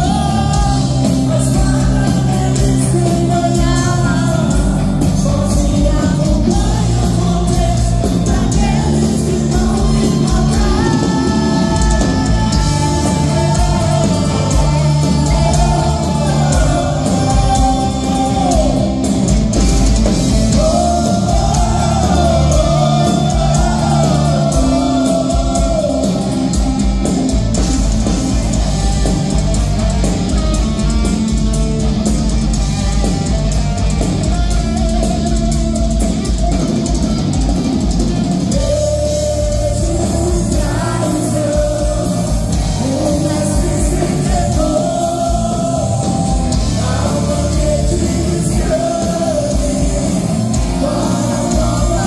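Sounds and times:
man singing into microphone: 0.0s - 19.1s, 20.5s - 26.4s, 38.5s - 52.0s
live rock band playing: 0.0s - 52.0s.

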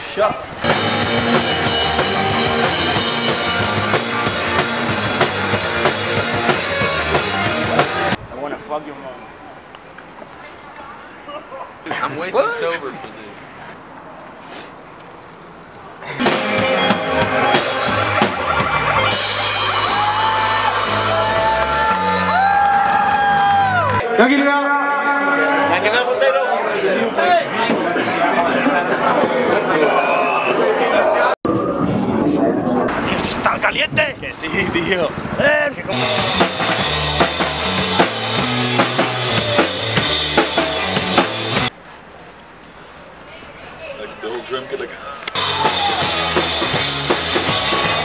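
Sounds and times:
bass line: 0.6s - 8.2s, 16.3s - 22.5s, 35.8s - 41.7s, 45.4s - 48.0s
drum kit fast beat: 0.6s - 8.2s, 16.2s - 22.3s, 35.9s - 41.7s, 45.4s - 48.0s
live rock band playing: 0.6s - 8.2s, 16.2s - 22.4s, 35.9s - 41.7s, 45.4s - 48.0s.

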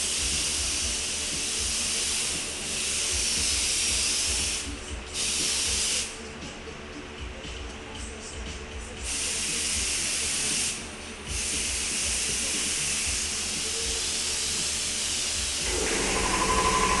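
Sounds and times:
paint spray gun hissing: 0.0s - 6.2s, 9.1s - 17.0s
steady hum: 15.6s - 17.0s.

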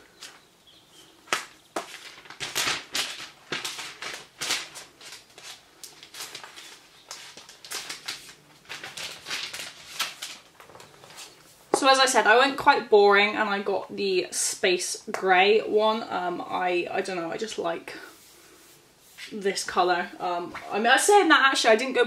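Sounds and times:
packaging crinkling: 1.3s - 11.5s.

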